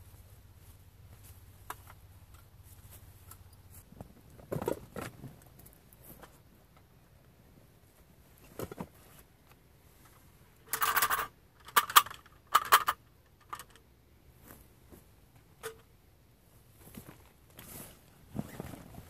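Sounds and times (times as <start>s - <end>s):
bag material and plastic rustling: 16.9s - 19.0s.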